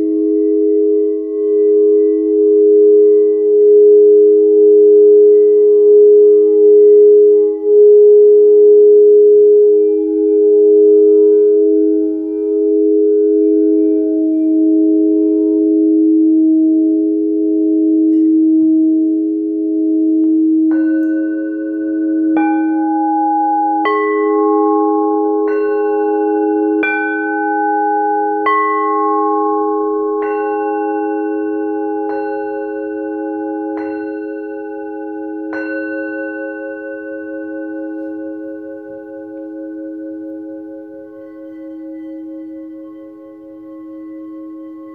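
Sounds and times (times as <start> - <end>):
singing bowls ringing: 0.0 - 44.9
singing bowls struck: 20.2 - 44.9.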